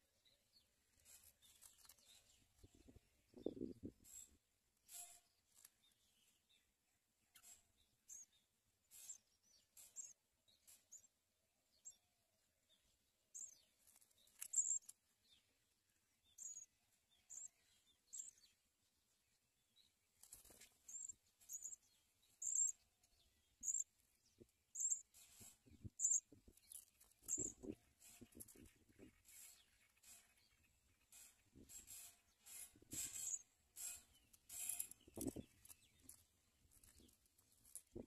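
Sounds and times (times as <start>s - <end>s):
nestlings chirping: 0.9s - 6.0s, 13.4s - 15.4s, 16.2s - 18.5s, 19.8s - 38.0s.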